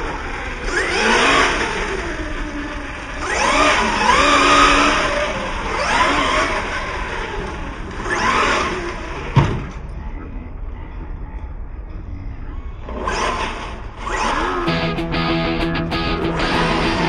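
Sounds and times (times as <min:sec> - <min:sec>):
electric rc truck motor whining: 0:00.0 - 0:09.3.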